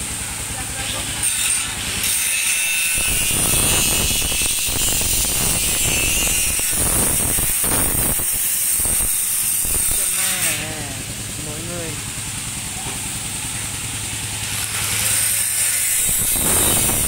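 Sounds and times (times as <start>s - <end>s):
angle grinder cutting steel: 0.4s - 17.0s.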